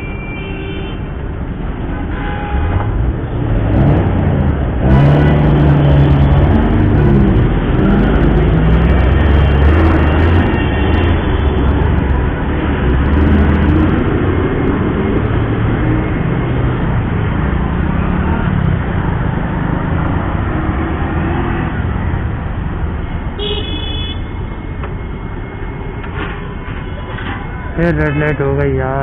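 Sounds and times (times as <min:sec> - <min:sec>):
vehicle horn toot: 0:00.0 - 0:01.0, 0:02.1 - 0:02.9, 0:10.2 - 0:11.6, 0:23.4 - 0:24.4
road and traffic noise: 0:00.0 - 0:29.0.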